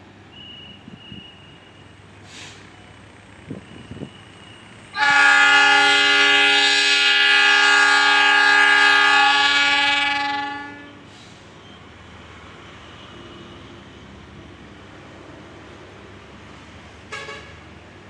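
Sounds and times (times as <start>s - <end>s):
diesel locomotive horn blast: 4.9s - 11.2s, 17.1s - 17.7s.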